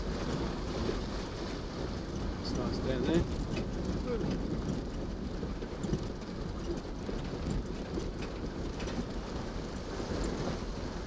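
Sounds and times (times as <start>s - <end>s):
water splashing and rushing: 0.0s - 6.5s
low engine rumble: 0.0s - 11.0s.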